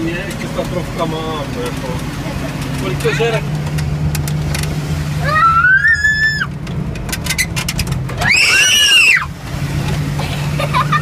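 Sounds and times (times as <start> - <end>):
fire truck engine drone: 0.0 - 11.0
shrill siren whoops: 5.3 - 6.5, 8.2 - 9.3.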